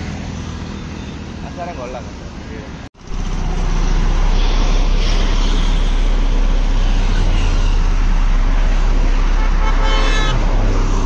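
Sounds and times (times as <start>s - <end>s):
road roller diesel engine: 3.0s - 11.0s.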